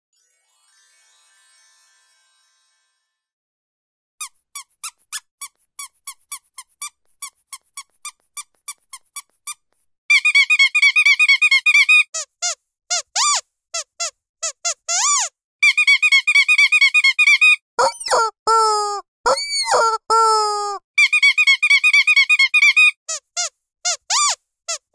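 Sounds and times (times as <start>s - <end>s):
squeaky dog toy squeaking: 4.2s - 24.9s.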